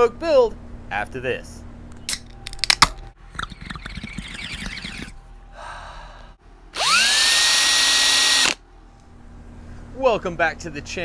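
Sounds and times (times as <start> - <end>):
breathy hiss: 5.5 - 6.4
person breathing while drinking: 5.5 - 6.4
power drill whining: 6.8 - 8.6.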